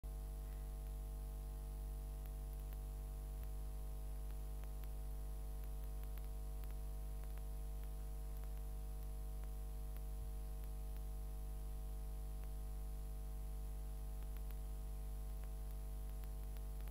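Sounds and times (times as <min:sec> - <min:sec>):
low hum: 0:00.1 - 0:16.9
faint clicks: 0:02.1 - 0:11.2, 0:14.0 - 0:16.9.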